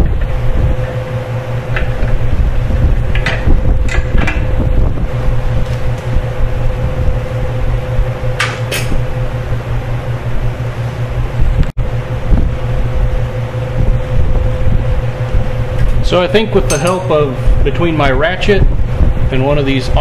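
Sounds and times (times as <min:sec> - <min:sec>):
low rumble with faint hum: 0:00.0 - 0:20.0
metal clinks of hand tools: 0:16.6 - 0:17.1.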